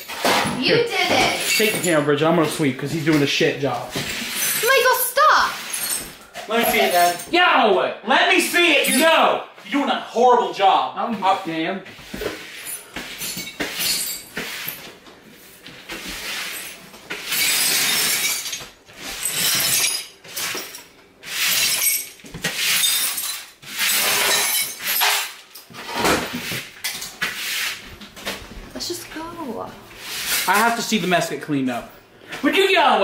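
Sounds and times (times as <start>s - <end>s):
broom sweeping broken ceramic: 0.0s - 7.3s, 11.2s - 31.3s.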